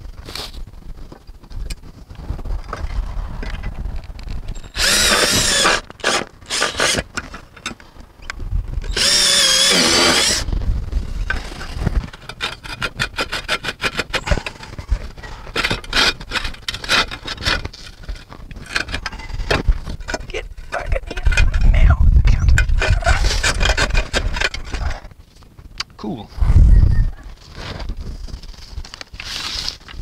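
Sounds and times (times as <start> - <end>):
tools clicking and scraping: 4.5 - 7.8, 11.2 - 21.7, 22.5 - 25.1
cordless drill driving screws: 4.6 - 7.2, 8.9 - 10.5.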